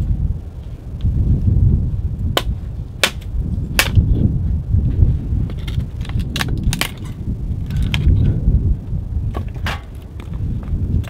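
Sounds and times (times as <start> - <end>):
wind rumble on microphone: 0.0 - 11.0
dry stick cracking: 2.3 - 4.1, 5.5 - 8.2.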